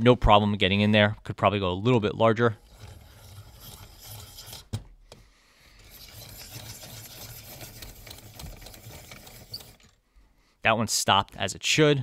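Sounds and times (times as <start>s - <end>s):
pencil sharpener rasping scrape: 2.6s - 4.8s, 5.8s - 10.0s.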